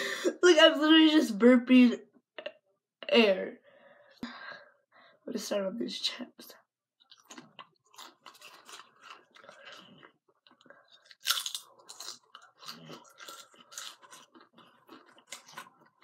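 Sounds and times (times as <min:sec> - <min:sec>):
person crunching potato chips: 0:07.0 - 0:16.0.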